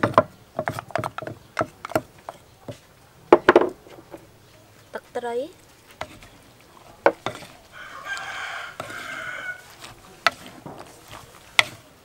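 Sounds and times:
wooden pestle knocking clay mortar: 0:00.0 - 0:04.3, 0:07.0 - 0:07.6, 0:08.7 - 0:11.8
rooster crowing: 0:07.6 - 0:09.7.

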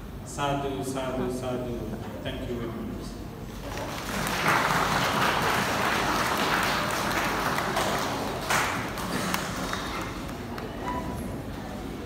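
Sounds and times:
audience applauding: 0:03.6 - 0:10.8.

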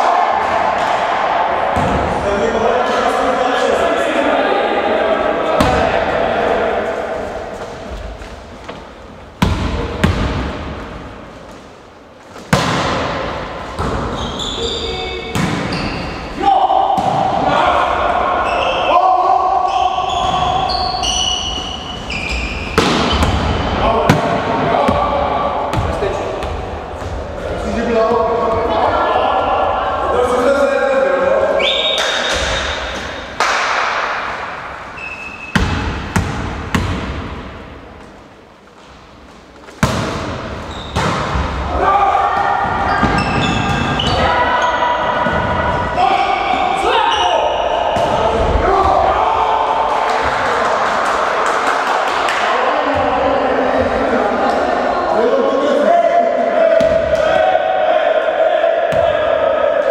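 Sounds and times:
volleyball hit: 0:05.6 - 0:06.1, 0:09.4 - 0:10.7, 0:12.5 - 0:14.2, 0:15.3 - 0:15.8, 0:22.7 - 0:25.1, 0:35.5 - 0:37.6, 0:39.8 - 0:41.7, 0:58.9 - 0:59.9
ball bouncing on gym floor: 0:09.4 - 0:10.5, 0:35.5 - 0:37.4, 0:39.8 - 0:41.5.

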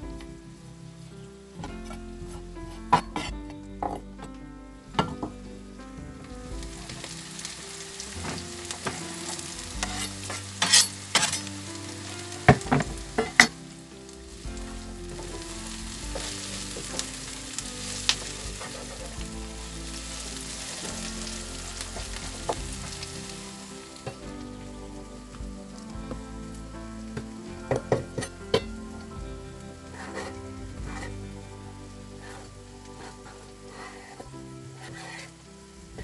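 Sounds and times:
onion sizzling in oil: 0:04.8 - 0:36.0.

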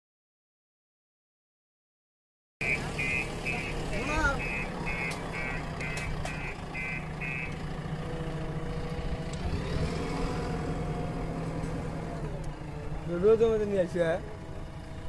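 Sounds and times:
reversing alarm beeping: 0:02.6 - 0:07.6
diesel engine running: 0:02.6 - 0:15.0.

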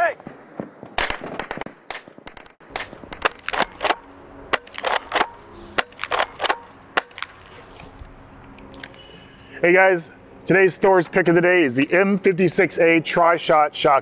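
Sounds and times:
airsoft shotgun firing and pumping: 0:00.9 - 0:07.4.

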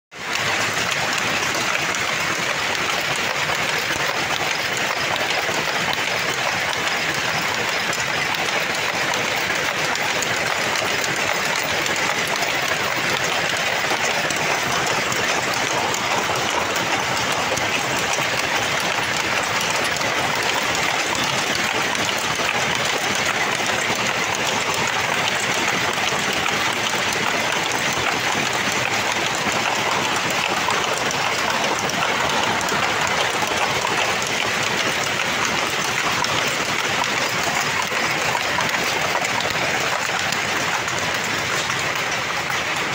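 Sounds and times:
looms clattering: 0:00.2 - 0:42.9.

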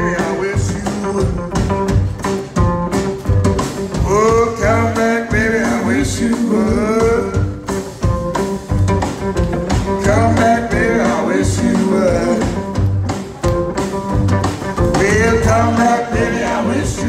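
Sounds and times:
man singing: 0:00.0 - 0:01.8, 0:03.9 - 0:07.7, 0:09.9 - 0:12.8, 0:14.8 - 0:17.0
double bass: 0:00.0 - 0:17.0
drums: 0:00.0 - 0:17.0
electric guitar: 0:00.0 - 0:17.0.

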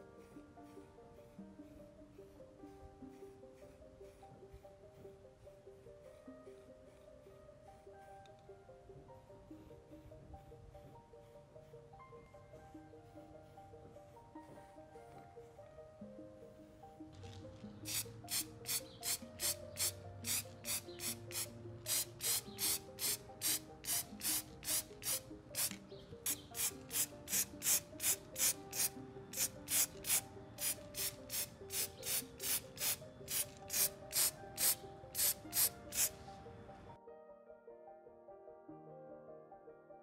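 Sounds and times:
soft background music: 0:00.0 - 0:40.0
spray can hissing: 0:17.8 - 0:36.2.

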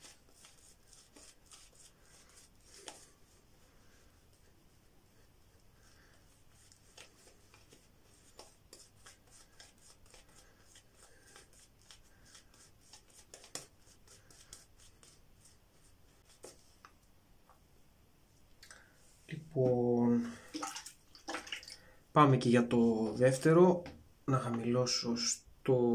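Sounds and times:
shaving brush scratching stubble: 0:00.0 - 0:03.4, 0:06.4 - 0:16.7.

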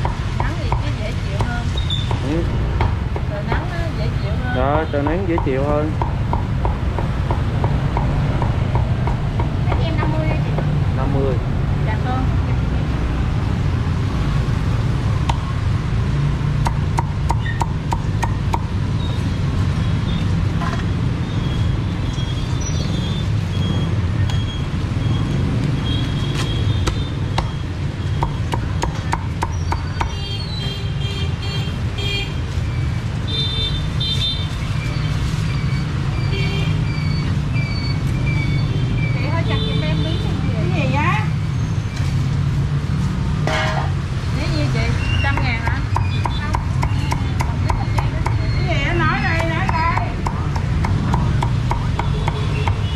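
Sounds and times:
steady low rumble: 0:05.9 - 0:13.8
cleaver chopping on wooden block: 0:16.6 - 0:18.7, 0:28.2 - 0:30.2, 0:49.3 - 0:52.8.

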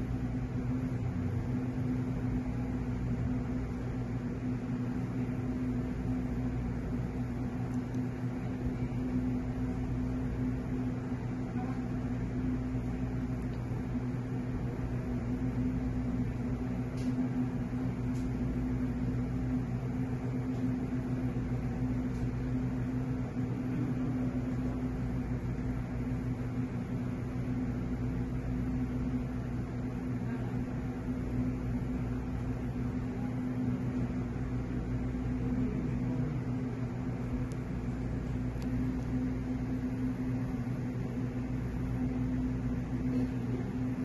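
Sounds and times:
mechanical hum: 0:00.0 - 0:44.0.

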